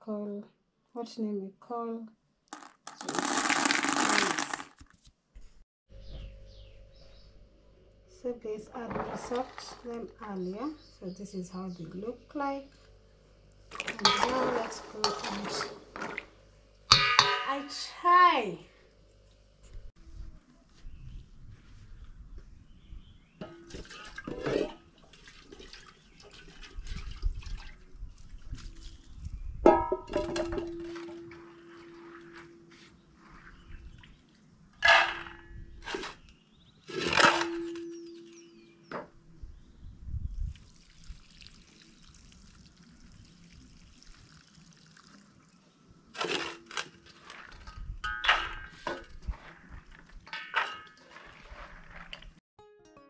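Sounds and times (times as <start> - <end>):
water pouring from pot: 2.5 - 4.8, 40.5 - 45.5, 50.5 - 52.4
hands sloshing beans in water: 2.6 - 4.8, 13.7 - 16.3, 47.1 - 52.4
water spattering on grass: 2.6 - 4.8
metal pot knock and ring: 16.9 - 17.6.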